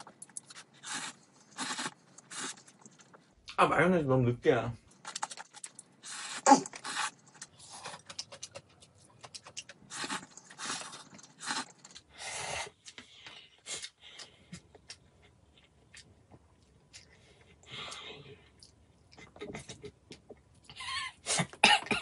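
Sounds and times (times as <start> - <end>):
chewing: 5.0 - 12.1, 12.8 - 20.7.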